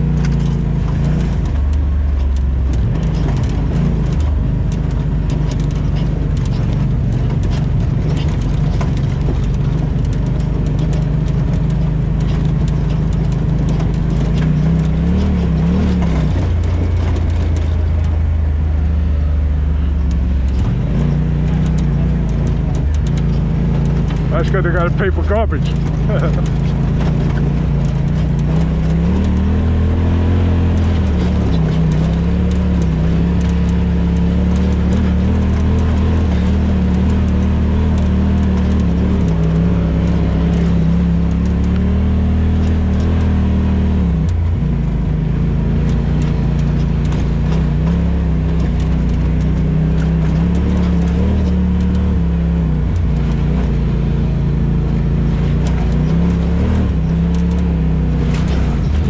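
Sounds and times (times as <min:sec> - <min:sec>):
off-road vehicle engine running: 0:00.0 - 0:59.0.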